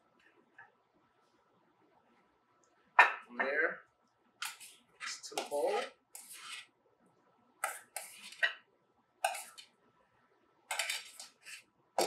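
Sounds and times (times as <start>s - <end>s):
utensil scraping steel bowl: 4.4s - 6.7s, 7.6s - 8.6s, 9.2s - 9.7s, 10.7s - 11.7s.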